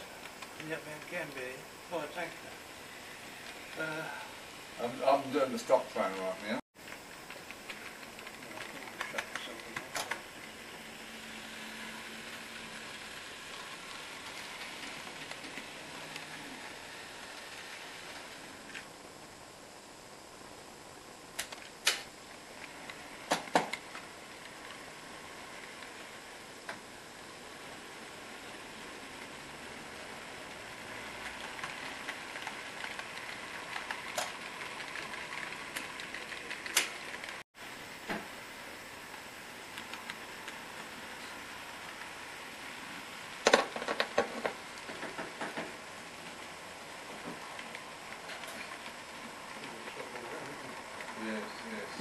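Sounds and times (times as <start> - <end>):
model train rolling on track: 0.0 - 19.4, 20.3 - 52.0
faint motor hum: 0.0 - 52.0
sharp clicks: 21.4 - 22.1.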